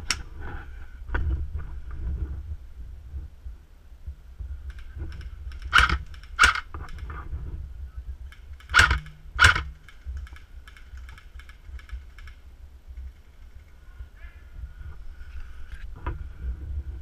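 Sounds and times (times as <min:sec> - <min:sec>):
airsoft gun cracks: 0:04.7 - 0:07.0, 0:08.3 - 0:12.4.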